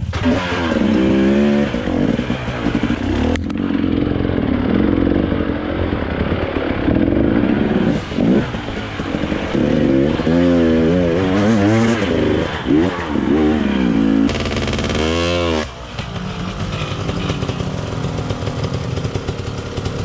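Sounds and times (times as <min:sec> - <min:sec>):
two-stroke motorcycle engine revving: 0:00.0 - 0:20.0.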